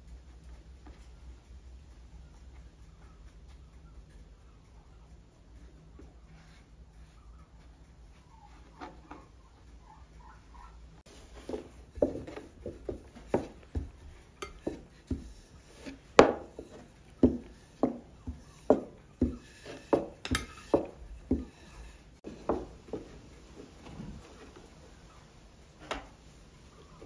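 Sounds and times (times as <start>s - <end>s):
rolling pin knocking on wooden board: 11.4s - 21.7s, 22.3s - 23.1s.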